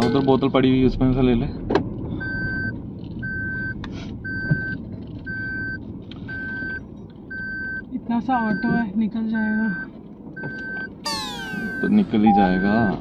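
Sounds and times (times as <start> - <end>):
car engine rumble: 0.0 - 13.0
electronic warning beeps: 2.2 - 7.8, 8.4 - 8.8, 9.6 - 13.0.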